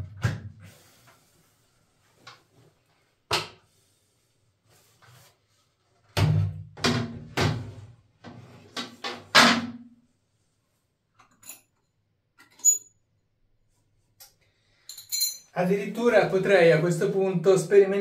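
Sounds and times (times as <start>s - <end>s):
small clink: 14.8s - 15.5s.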